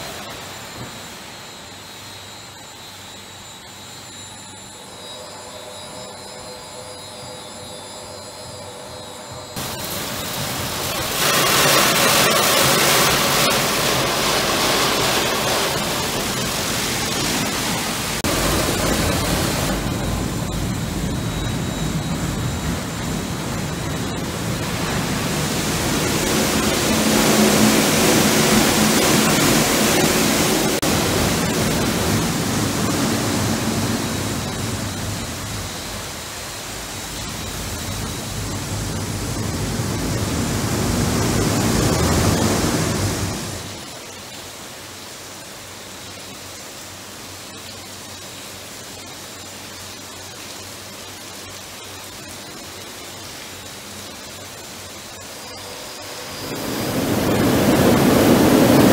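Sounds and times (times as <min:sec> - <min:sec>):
water spray splashing: 0:09.6 - 0:20.0.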